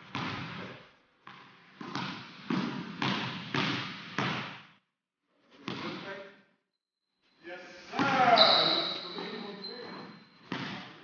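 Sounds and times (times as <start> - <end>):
basketball bouncing on wooden floor: 0.0 - 0.7, 1.3 - 4.6, 10.5 - 11.0.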